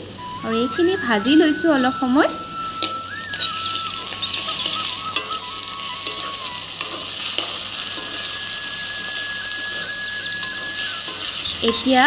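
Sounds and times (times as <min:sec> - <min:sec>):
food sizzling in hot oil: 0:00.0 - 0:12.0
metal spatula scraping a pan: 0:02.6 - 0:12.0.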